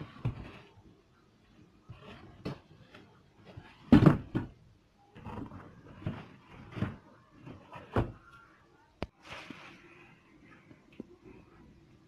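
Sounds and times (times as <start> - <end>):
knocks and thumps of objects: 3.5 - 4.6.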